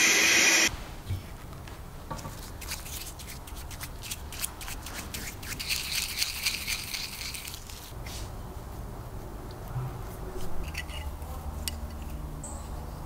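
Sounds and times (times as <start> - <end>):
paintbrush scrubbing metal part: 2.6 - 7.9.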